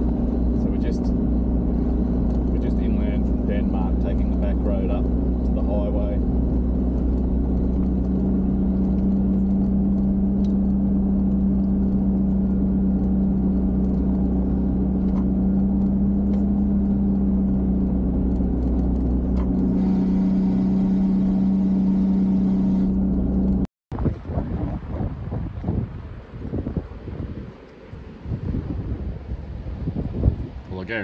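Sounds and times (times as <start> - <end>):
truck engine and road drone: 0.0 - 31.0
wind buffeting microphone: 23.9 - 31.0.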